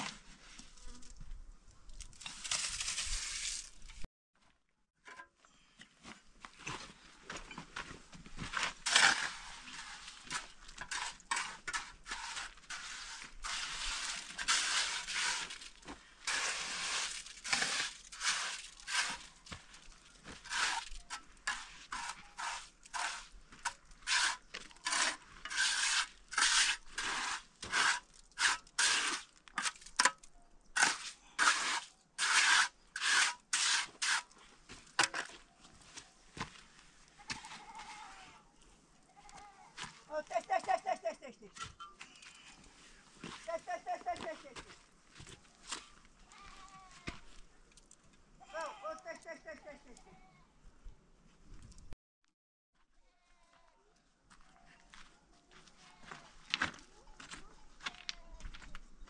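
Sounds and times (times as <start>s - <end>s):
trowel scraping wet mortar: 8.7s - 30.2s, 30.8s - 35.4s.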